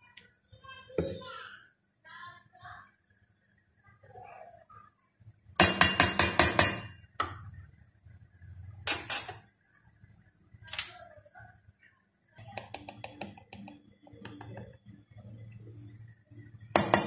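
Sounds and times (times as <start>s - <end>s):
spoon tapping metal bowl: 5.6s - 7.4s, 8.9s - 9.4s, 12.6s - 14.8s, 16.8s - 17.0s.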